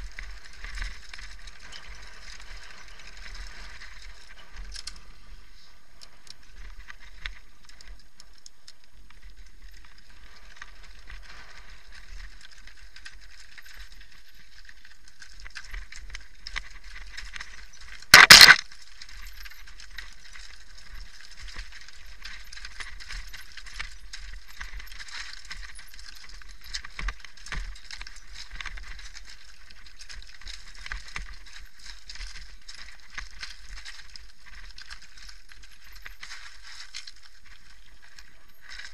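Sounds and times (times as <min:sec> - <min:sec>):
mountain bike rattling: 0:00.0 - 0:38.9
stones knocking under tyres: 0:18.0 - 0:18.7.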